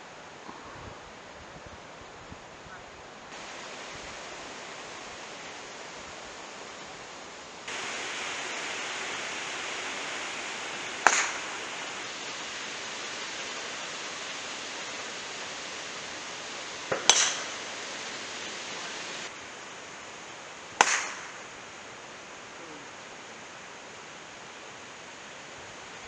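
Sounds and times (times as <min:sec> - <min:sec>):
outdoor background hiss: 0:00.0 - 0:26.0
golf club striking ball: 0:10.0 - 0:12.2, 0:16.9 - 0:18.6, 0:20.8 - 0:21.4.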